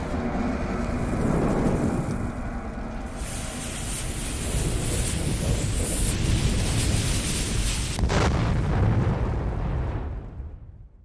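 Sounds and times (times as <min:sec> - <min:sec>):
steady low rumble: 0:00.0 - 0:11.0
fuse sizzling hiss: 0:02.9 - 0:08.0.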